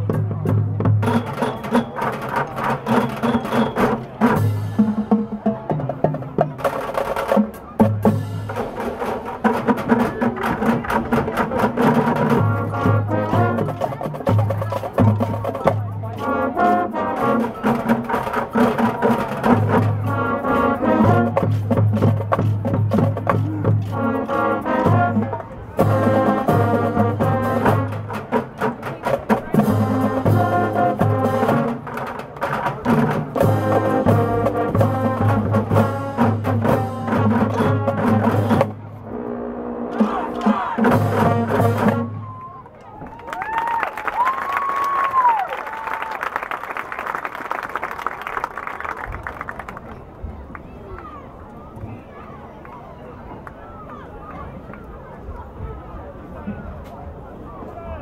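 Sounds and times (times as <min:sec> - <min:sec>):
marching band playing: 0:00.0 - 0:42.8.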